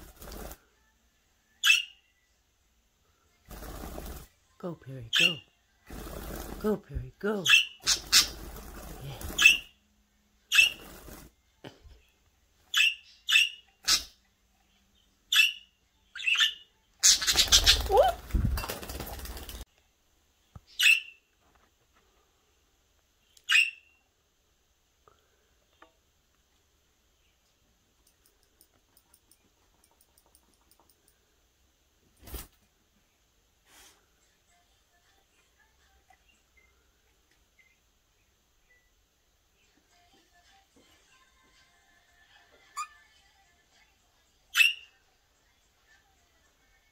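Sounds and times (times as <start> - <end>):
budgerigars chirping: 7.5 - 8.4.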